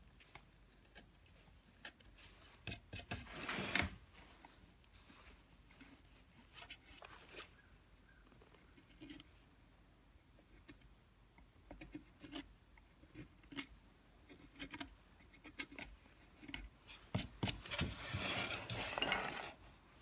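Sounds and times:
carving tool scraping: 11.7s - 19.6s.

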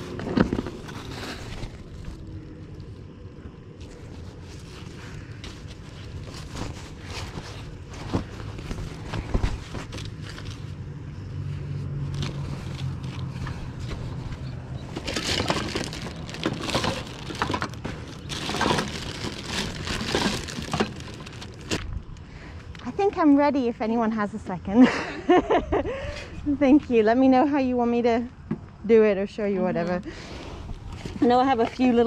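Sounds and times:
rustling and crinkling: 0.0s - 23.2s, 30.1s - 32.0s
steady low hum: 0.0s - 32.0s.

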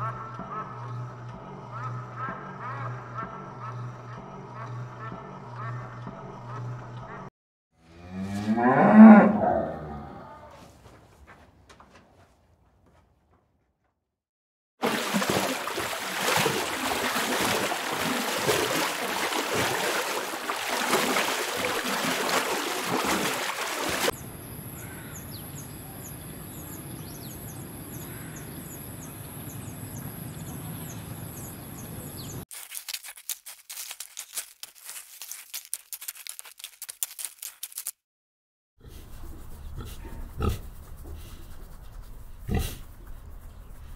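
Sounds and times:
rapid dry crackling: 14.8s - 24.1s, 32.5s - 38.0s
water splashing and sloshing: 14.8s - 24.2s.

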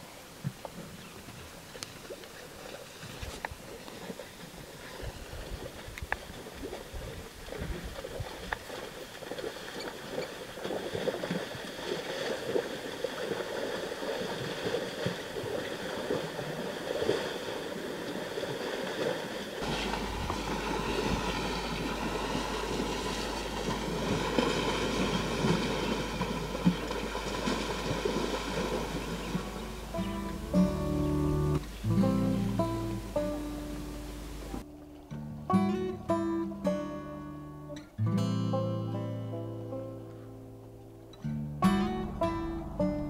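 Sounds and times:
water sloshing and splashing: 0.0s - 35.1s
steady low hum: 19.6s - 35.6s.

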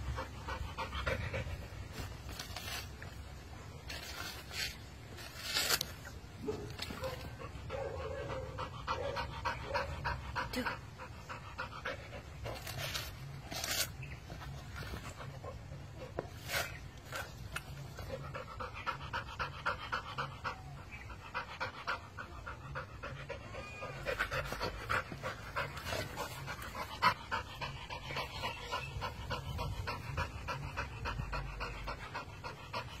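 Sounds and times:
dog panting: 0.0s - 2.6s, 6.5s - 13.2s, 17.1s - 33.0s
teeth tearing husk fibres: 1.5s - 7.4s, 12.4s - 15.4s.

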